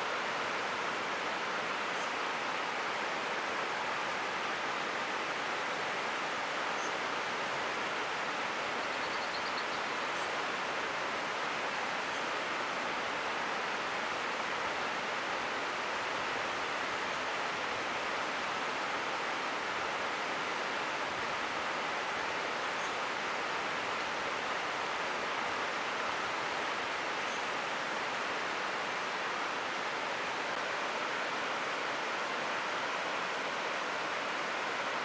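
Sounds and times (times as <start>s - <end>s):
river rapids roaring: 10.4s - 35.0s.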